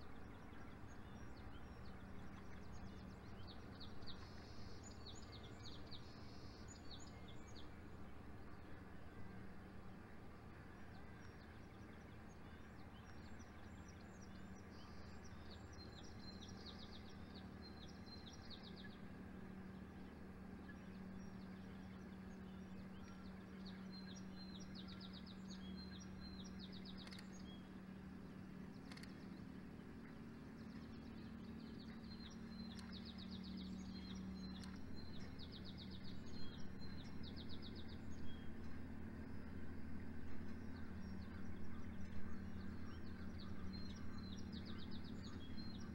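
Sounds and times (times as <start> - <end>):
steady low hum: 0.0 - 45.9
songbird singing with trill: 20.6 - 27.7, 30.5 - 39.6, 40.4 - 45.9.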